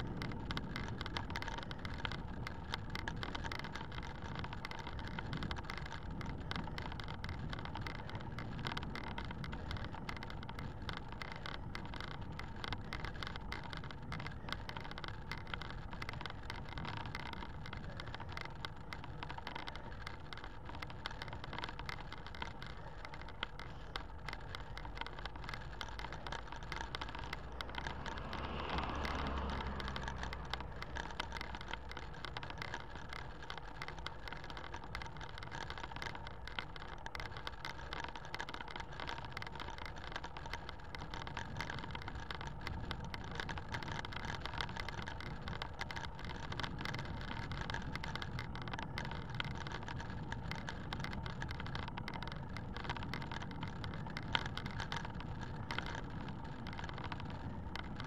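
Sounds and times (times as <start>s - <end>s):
wind and road noise: 0.0s - 58.0s
passing car rumble: 27.2s - 31.6s.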